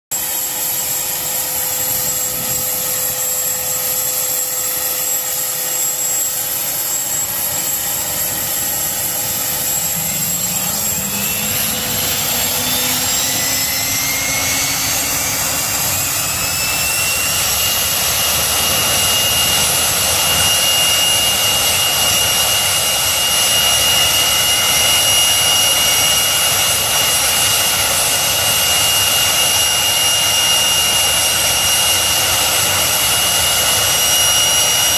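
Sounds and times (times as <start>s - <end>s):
helicopter engines whining: 0.1s - 34.9s.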